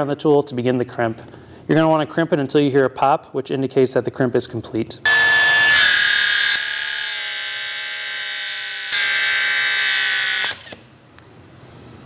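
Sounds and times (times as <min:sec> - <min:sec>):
hydraulic crimp tool motor whine: 0:05.1 - 0:10.8.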